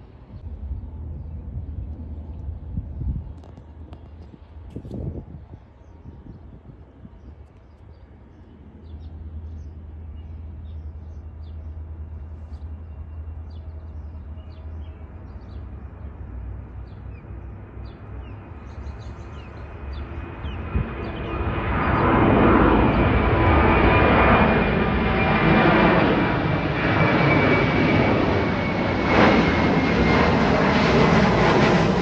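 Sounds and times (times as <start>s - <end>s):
jet airliner taking off: 8.2s - 32.0s
bird chirps: 16.8s - 22.2s.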